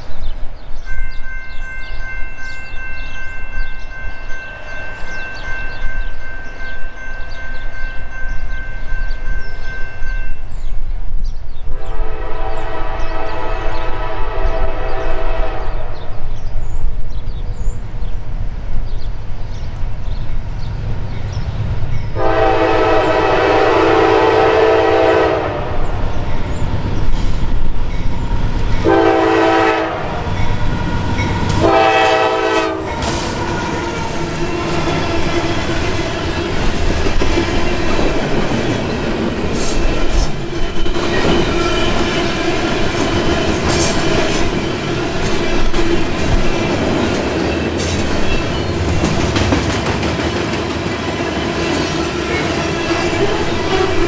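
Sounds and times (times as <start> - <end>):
locomotive air horn blasts: 11.8 - 15.9, 22.2 - 25.8, 28.8 - 30.3, 31.6 - 35.4, 52.9 - 54.0
train wheels rumbling and clattering: 25.4 - 54.0.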